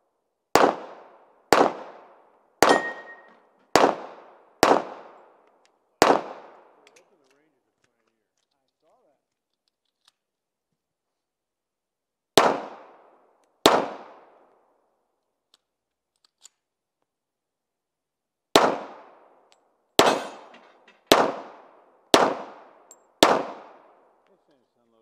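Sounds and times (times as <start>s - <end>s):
pistol shots with echo: 0.5s - 6.9s, 12.3s - 14.5s, 18.5s - 19.4s, 20.0s - 24.2s.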